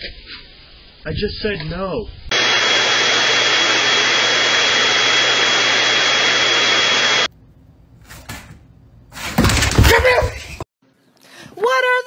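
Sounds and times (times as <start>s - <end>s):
electric grooming tool whining: 2.3s - 7.3s.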